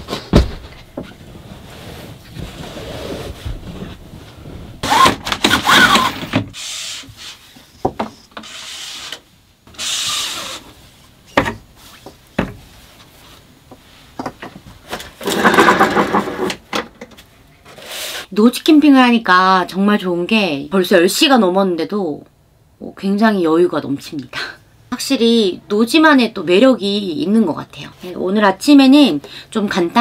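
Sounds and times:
objects rubbing and scraping: 1.0s - 5.0s.

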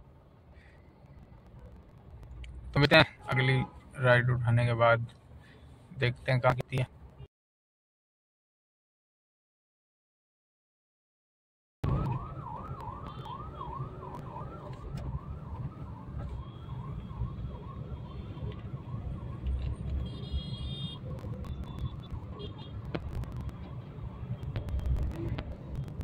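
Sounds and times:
emergency siren warbling: 11.8s - 20.1s
road and engine rumble in car: 11.8s - 26.0s.

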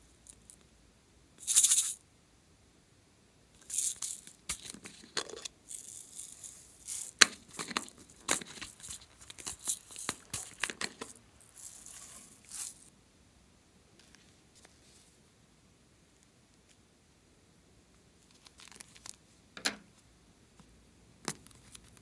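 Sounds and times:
plastic sequins rattling: 1.4s - 2.0s, 3.6s - 12.9s.

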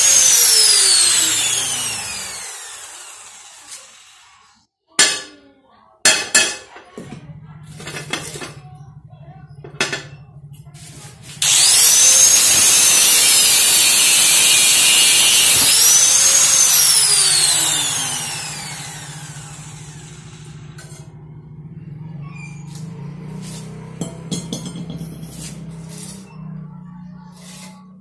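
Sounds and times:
angle grinder cutting steel: 0.0s - 4.6s, 11.2s - 21.2s, 22.6s - 26.4s, 27.3s - 28.0s.

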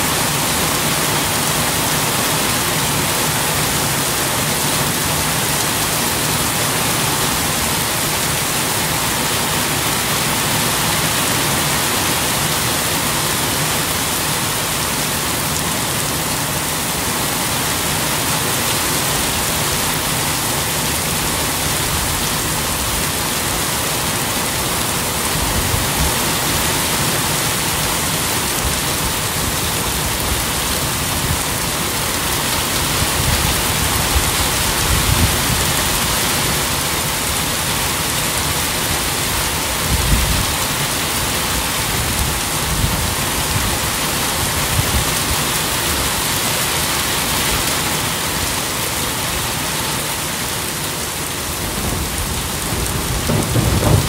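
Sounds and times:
steady rain falling: 0.0s - 54.0s
low thumps: 52.9s - 54.0s.

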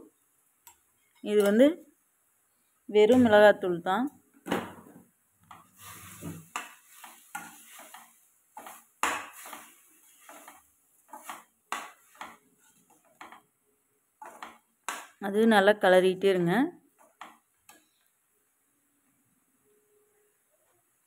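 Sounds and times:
spatula scraping a steel pan: 5.6s - 13.4s.

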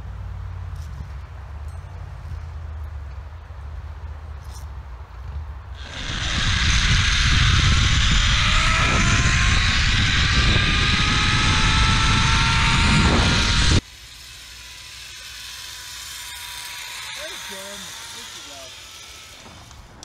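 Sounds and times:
wind buffeting microphone: 5.3s - 13.8s
zip-line pulleys whirring on cable: 5.7s - 20.0s.

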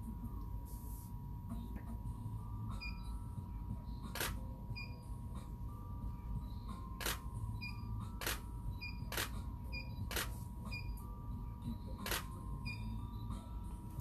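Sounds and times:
camera shutter firing: 7.0s - 7.2s, 8.2s - 8.5s.

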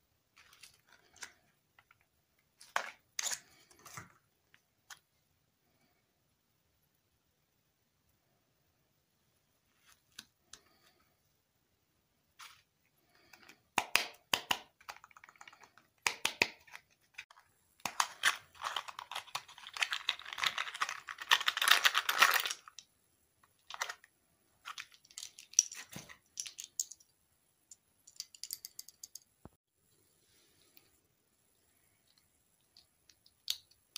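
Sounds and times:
crisp clicks and crinkles: 0.4s - 4.2s, 14.7s - 22.9s, 23.5s - 27.1s
packaging crinkling and tearing: 17.8s - 22.8s
small plastic pieces clicking: 17.8s - 22.9s, 24.6s - 27.1s, 28.0s - 29.3s, 32.0s - 33.9s.

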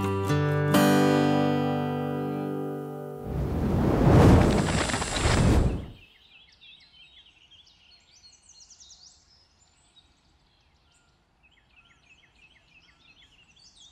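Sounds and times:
songbirds chirping: 4.6s - 13.9s.

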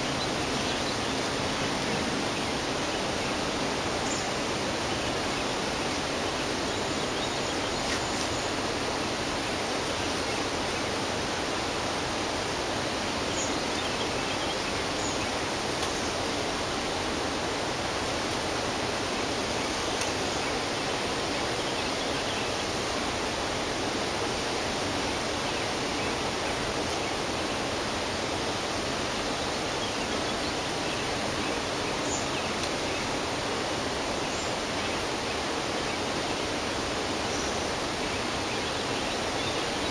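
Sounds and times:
flowing water rushing: 0.0s - 39.9s.

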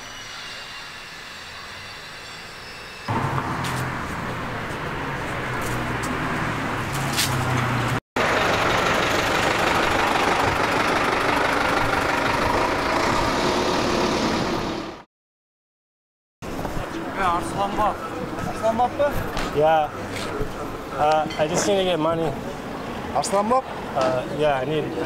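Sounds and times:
street traffic noise: 0.0s - 15.1s, 16.4s - 25.0s
low engine hum: 3.1s - 15.0s.

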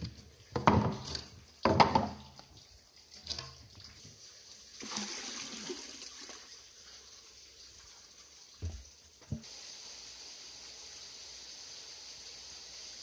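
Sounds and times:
water splashing into a pond: 0.5s - 11.8s
high hiss of water: 4.7s - 13.0s.

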